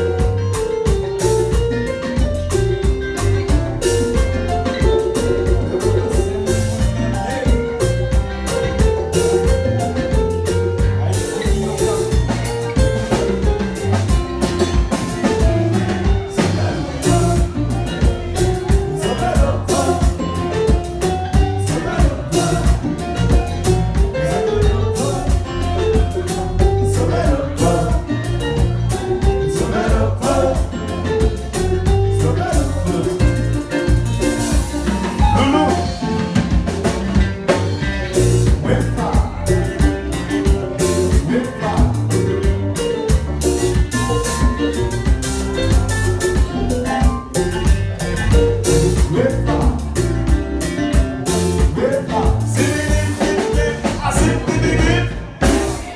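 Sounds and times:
drum kit beat: 0.0 - 55.9
live band playing: 0.0 - 55.9
person singing: 16.0 - 28.6, 35.1 - 36.1, 51.3 - 55.9.

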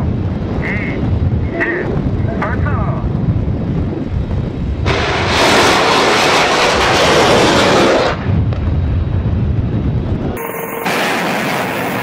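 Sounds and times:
low rumble: 0.0 - 12.0
missile launch roar: 4.8 - 8.9, 10.4 - 12.0.

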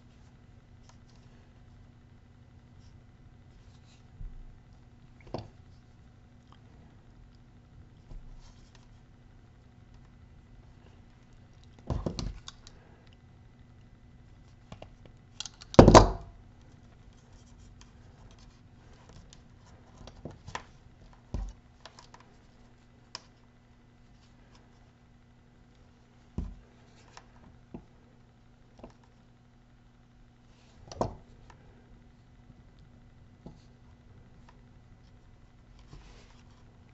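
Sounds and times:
faint steady hum: 0.0 - 36.9
wires and connectors scratching and clicking: 10.8 - 13.2, 13.8 - 15.8.

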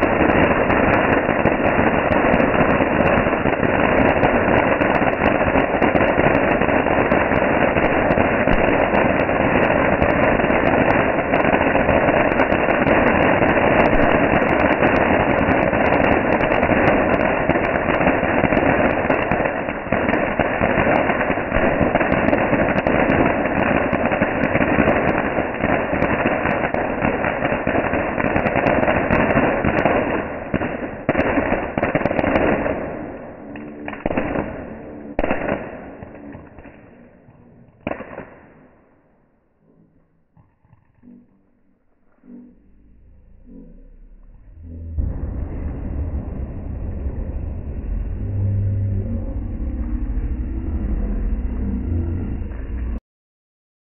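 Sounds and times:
firework fountain crackling hiss: 0.0 - 39.1.

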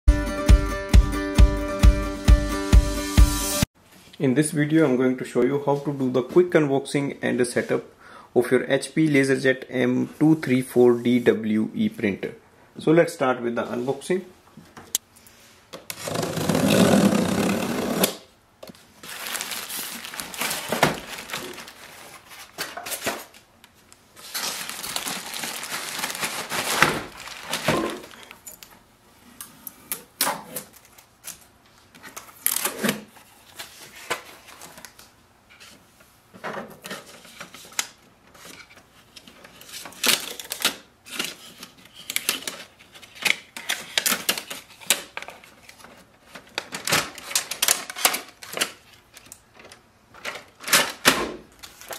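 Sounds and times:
packaging rustling and clicking: 17.4 - 28.7, 36.8 - 51.9
packing tape peeling: 24.2 - 28.3.

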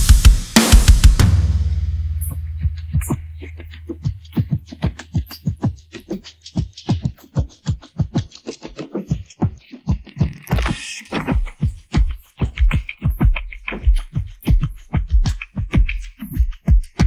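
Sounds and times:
cymbal wash: 0.0 - 4.3
low drum boom: 0.0 - 4.4
quick drum hits: 0.0 - 5.7.

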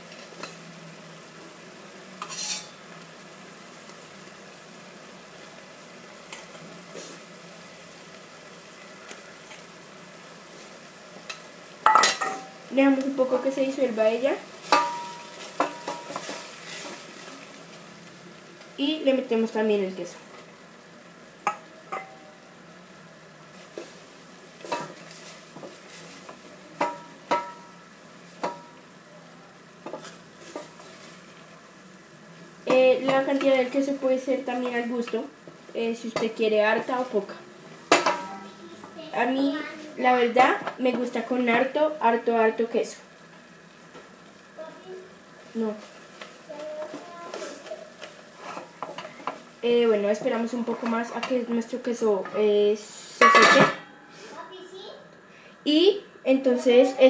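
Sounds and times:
pot sizzling on stove: 0.0 - 57.0
utensils handled at pot: 2.2 - 2.8, 14.6 - 17.1.

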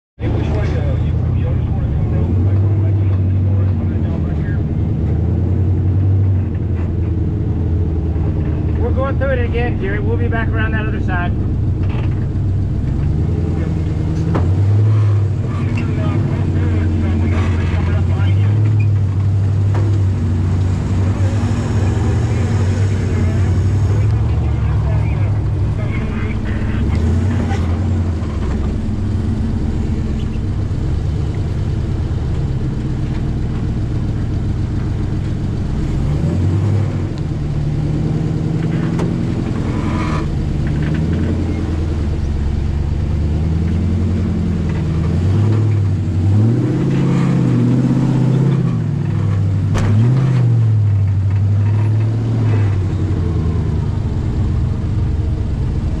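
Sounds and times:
buggy engine revving under load: 0.2 - 56.0
chassis knocks: 48.6 - 52.8.

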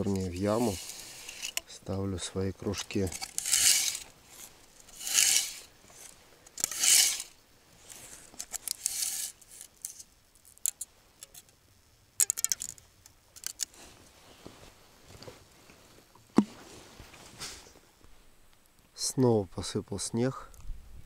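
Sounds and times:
small clicks and clinks: 8.3 - 11.6, 12.2 - 13.8.

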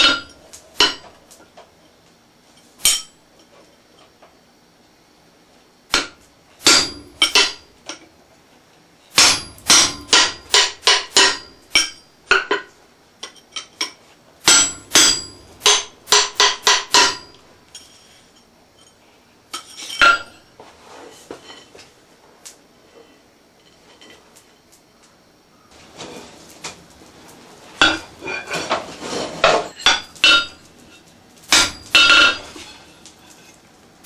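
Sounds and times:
hammer striking metal punch: 5.9 - 7.7, 9.2 - 12.6, 14.5 - 17.4, 31.5 - 32.4.

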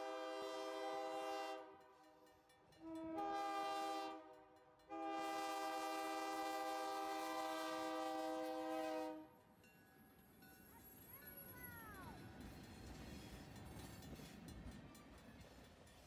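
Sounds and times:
locomotive air horn blasts: 0.0 - 1.8, 2.8 - 4.3, 4.9 - 9.4.

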